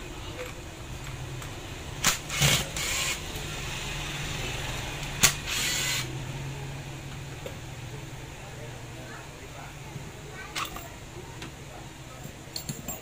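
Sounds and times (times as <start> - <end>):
power screwdriver whirring: 2.1 - 3.2, 5.2 - 6.1.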